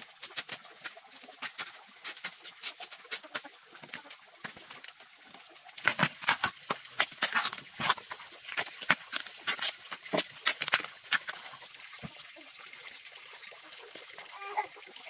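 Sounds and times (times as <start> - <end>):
bamboo sheaths tearing: 5.8 - 11.6.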